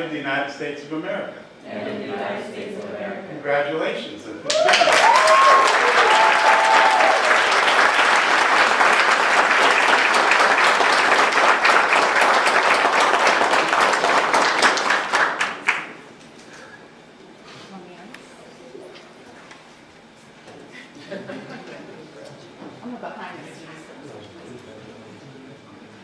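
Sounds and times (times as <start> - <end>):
crowd clapping: 4.4 - 16.0
people cheering: 4.5 - 15.2.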